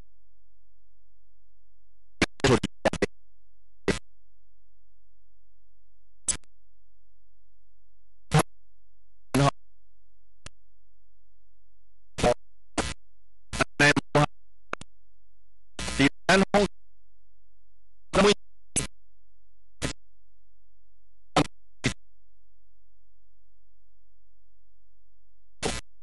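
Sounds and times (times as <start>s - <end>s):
short clipped sound snippets: 6.3s - 6.5s.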